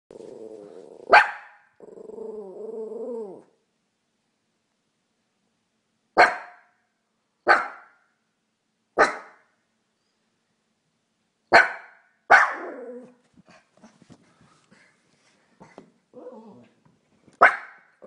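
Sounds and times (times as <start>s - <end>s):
fox barking: 1.0s - 1.7s, 6.2s - 6.7s, 7.5s - 8.0s, 9.0s - 9.5s, 11.5s - 13.0s, 17.4s - 17.9s.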